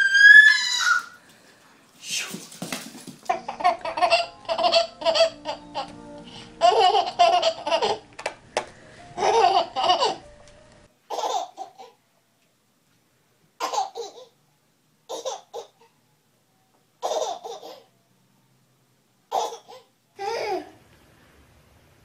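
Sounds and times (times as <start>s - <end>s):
babies laughing: 3.3s - 6.0s, 6.6s - 8.1s, 9.2s - 10.2s.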